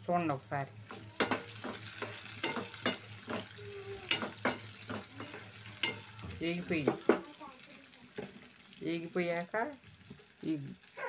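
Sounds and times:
oil sizzling: 0.0s - 11.0s
spatula scraping a pan: 0.8s - 7.2s.

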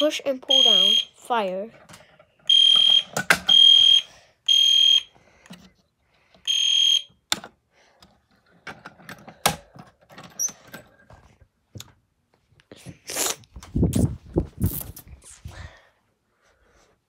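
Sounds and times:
fire alarm shrill beep: 0.0s - 1.2s, 2.5s - 5.1s, 6.5s - 7.2s.

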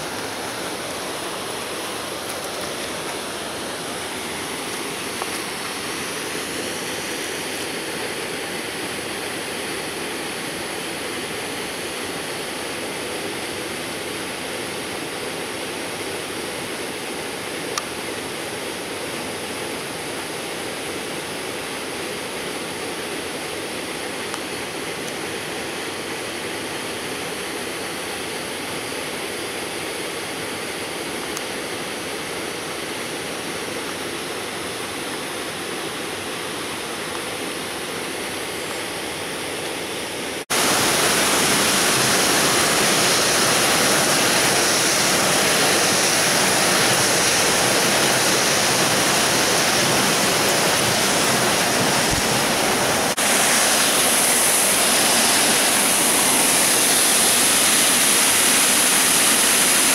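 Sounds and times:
creek flowing over rocks: 0.0s - 8.9s, 40.5s - 59.9s.

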